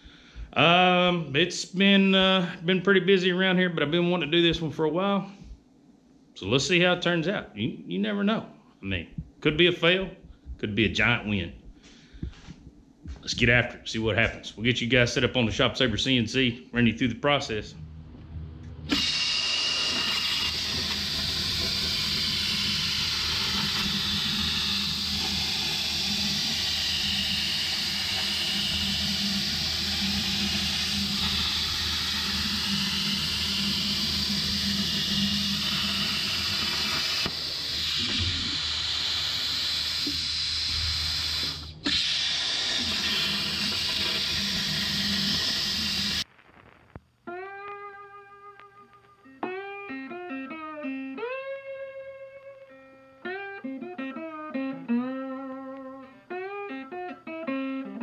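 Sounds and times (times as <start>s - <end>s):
plasma arc hissing: 18.8s - 46.3s.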